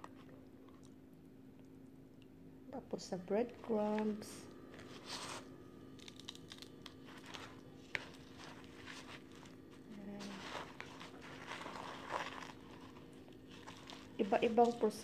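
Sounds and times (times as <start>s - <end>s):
hands rustling breadcrumbs: 6.0s - 15.0s.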